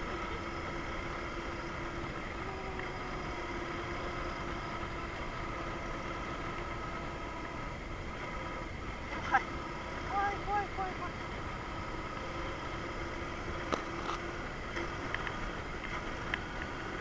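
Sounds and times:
motorcycle engine cruising: 0.0 - 17.0
wind and road noise: 0.0 - 17.0.

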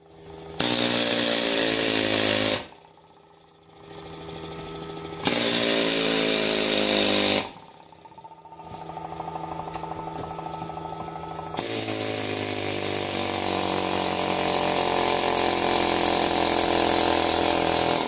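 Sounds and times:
machine hum: 2.1 - 15.9.

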